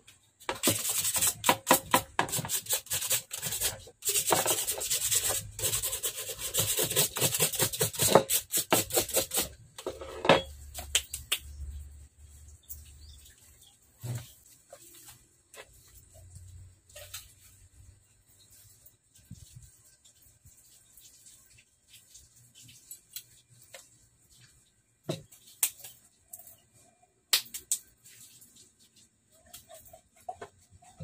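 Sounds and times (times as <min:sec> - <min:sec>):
metal scraping against abrasive: 0:00.5 - 0:10.7.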